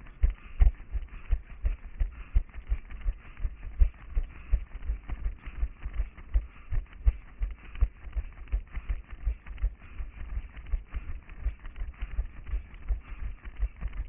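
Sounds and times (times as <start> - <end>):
running footsteps on pavement: 0.1 - 14.0.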